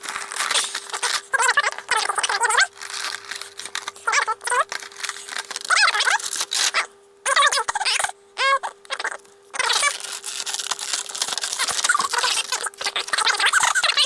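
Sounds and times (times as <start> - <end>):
plastic packaging crinkling: 0.0 - 8.0, 9.0 - 14.0
plastic squeaking on plastic: 0.1 - 14.0.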